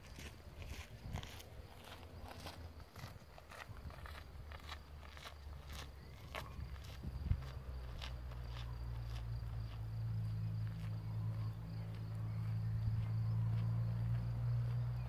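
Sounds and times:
wind rumble on microphone: 0.1s - 4.6s, 5.6s - 8.4s.

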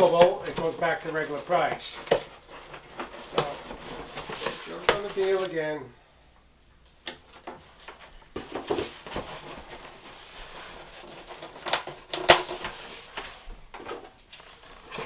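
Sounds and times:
cardboard box rustling and scraping: 1.6s - 5.5s.

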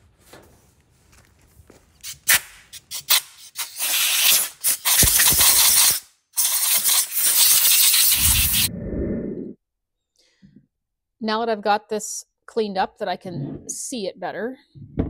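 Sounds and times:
compressed air blasting: 2.0s - 8.7s.

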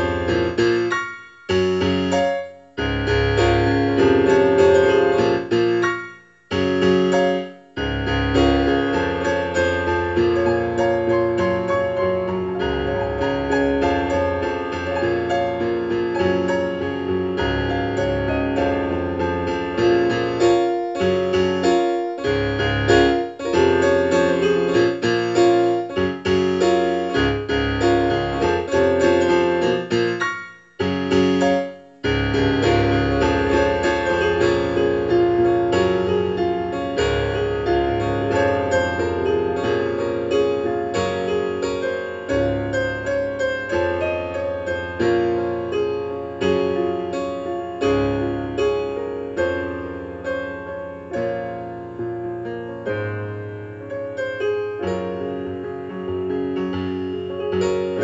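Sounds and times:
solo piano playing: 0.0s - 58.0s.

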